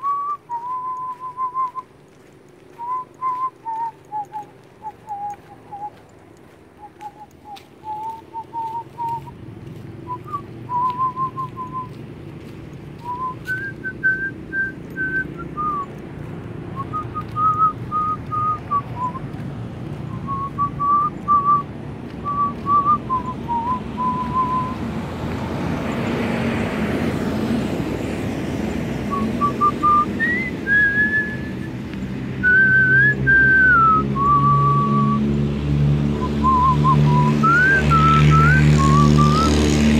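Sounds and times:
person whistling a tune: 0:00.0 - 0:01.9, 0:02.8 - 0:06.0, 0:06.8 - 0:09.3, 0:10.1 - 0:12.0, 0:13.0 - 0:15.9, 0:16.8 - 0:19.2, 0:20.1 - 0:24.8, 0:29.1 - 0:31.8, 0:32.4 - 0:35.3, 0:36.2 - 0:39.6
broad noise: 0:00.0 - 0:25.1, 0:29.0 - 0:39.9.

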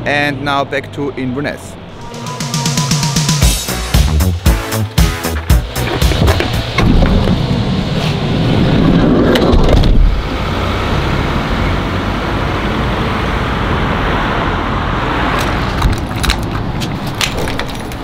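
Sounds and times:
cars driving past: 0:05.6 - 0:17.7.

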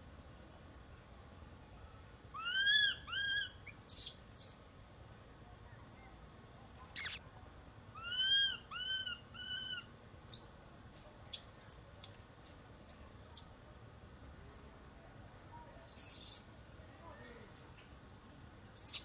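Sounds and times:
high-pitched animal calls: 0:07.0 - 0:07.2.

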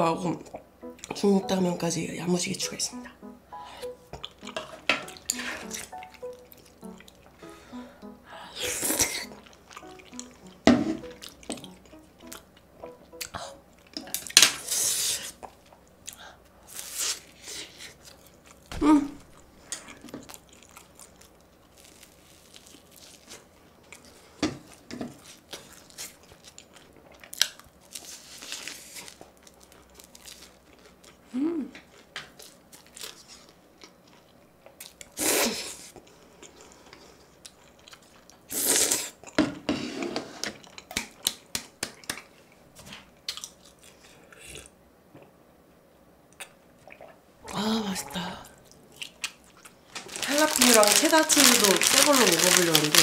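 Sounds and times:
person chewing crunchy food: 0:04.1 - 0:07.6, 0:08.6 - 0:39.4, 0:40.6 - 0:41.4, 0:43.2 - 0:45.3, 0:48.1 - 0:53.0.

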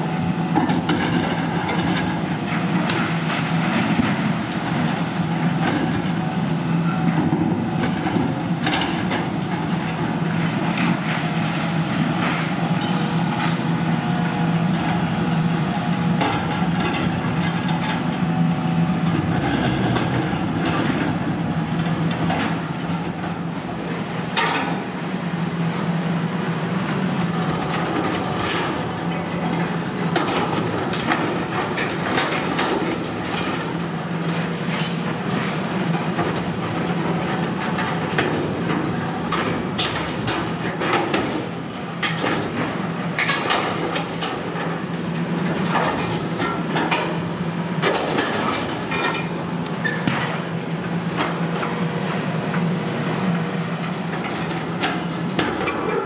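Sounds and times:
diesel engine droning under load: 0:00.0 - 0:29.3
metal crunching and clanking: 0:19.0 - 0:23.2.

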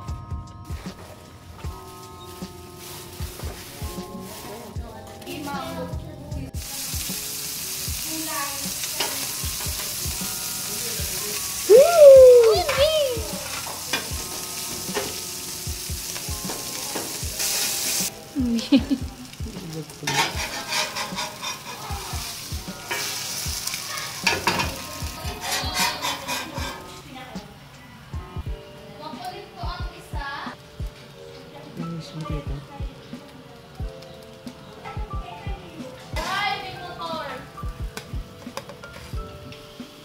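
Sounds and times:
food sizzling on a griddle: 0:00.0 - 0:40.0
spatula scraping and tapping metal: 0:20.1 - 0:22.1, 0:24.2 - 0:26.9.

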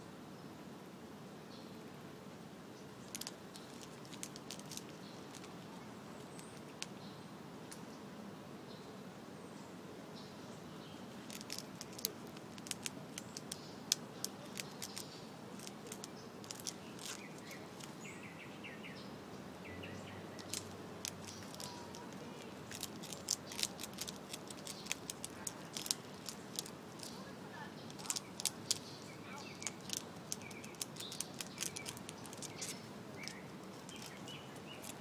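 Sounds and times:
squirrel gnawing plant stalk: 0:03.0 - 0:07.0, 0:11.1 - 0:18.1, 0:20.2 - 0:35.0.

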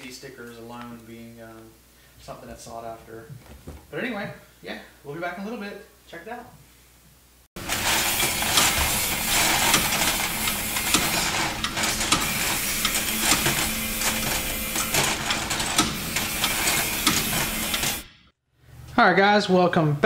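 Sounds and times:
mechanical clatter with rapid clicks: 0:07.6 - 0:18.1.

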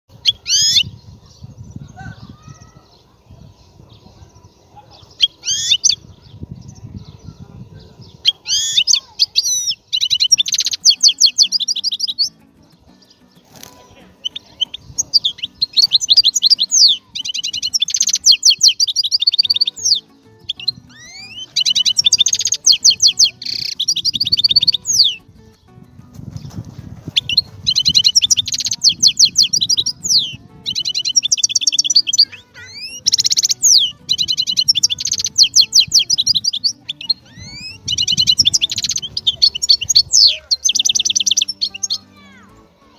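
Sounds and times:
songbird trilling: 0:00.1 - 0:25.7, 0:27.1 - 0:42.4.

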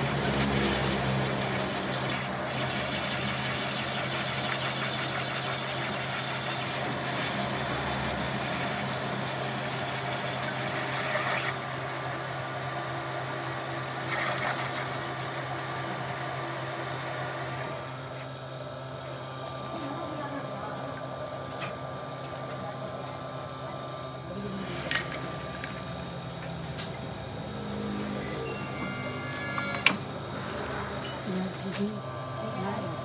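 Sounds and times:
drill squealing in metal: 0:00.0 - 0:06.8, 0:10.7 - 0:11.8, 0:13.8 - 0:15.2, 0:28.2 - 0:29.9
lathe motor humming: 0:00.0 - 0:18.2.

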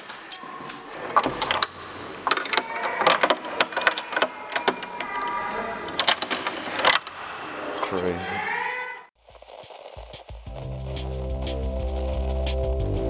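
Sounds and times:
key rattling in door lock: 0:01.0 - 0:05.1, 0:05.9 - 0:08.2.

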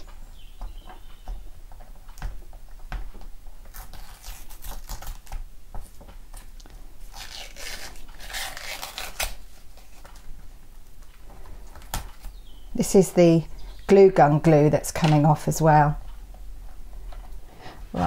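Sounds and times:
paper peeling and tearing: 0:03.7 - 0:05.4, 0:07.0 - 0:10.0.

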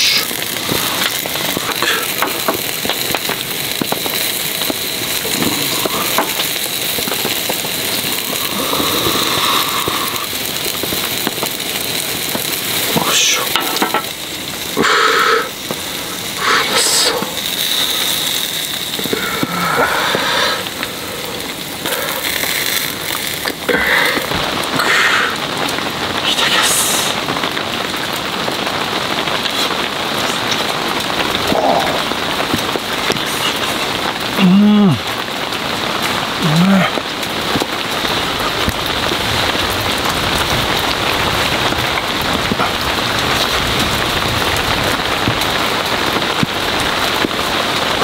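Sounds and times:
heavy rain on a tent: 0:00.0 - 0:48.0
skewers sizzling on a grill: 0:00.0 - 0:48.0
man murmuring and humming: 0:05.2 - 0:07.4, 0:08.2 - 0:10.4, 0:12.8 - 0:14.1, 0:14.7 - 0:15.6, 0:16.3 - 0:17.5, 0:19.0 - 0:25.4, 0:29.6 - 0:35.2, 0:36.2 - 0:37.6.

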